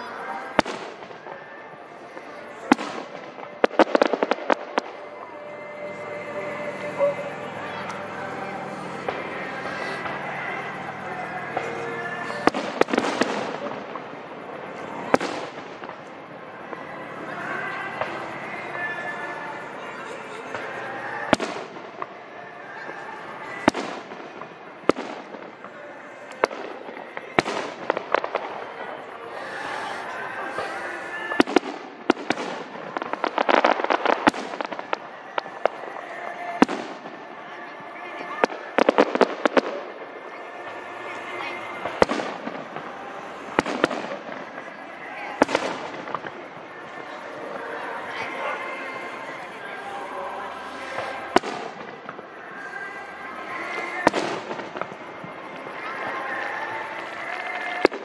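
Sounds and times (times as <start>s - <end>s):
sharp firework cracks: 0.0s - 16.1s, 20.6s - 22.2s, 22.9s - 40.0s, 40.6s - 46.6s, 51.0s - 52.7s, 53.8s - 55.6s
fireworks bursting with loud bangs: 0.0s - 58.0s.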